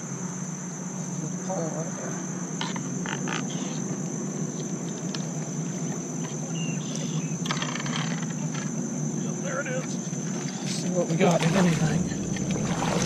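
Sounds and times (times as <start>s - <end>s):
high-pitched insect chorus: 0.0s - 13.0s
low steady hum: 0.0s - 13.0s
pole splashing in water: 11.3s - 13.0s.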